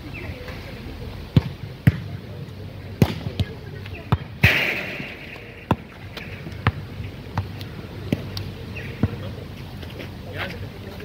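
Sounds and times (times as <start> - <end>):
ball bouncing on asphalt: 1.3 - 2.2, 3.0 - 9.4.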